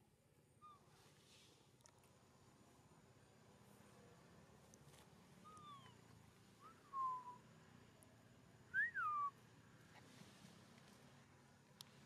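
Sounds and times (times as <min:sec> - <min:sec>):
whistled animal calls: 0:08.7 - 0:09.4.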